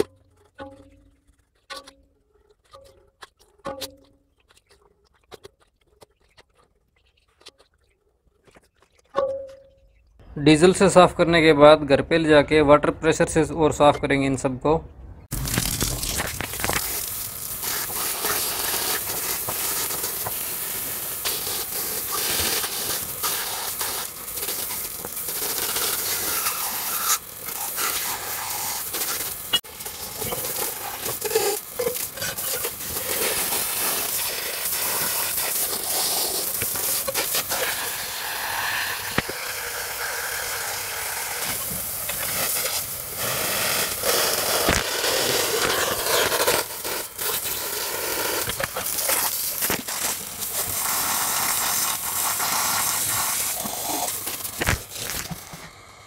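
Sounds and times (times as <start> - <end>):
hose water splashing on metal: 15.3 - 55.6.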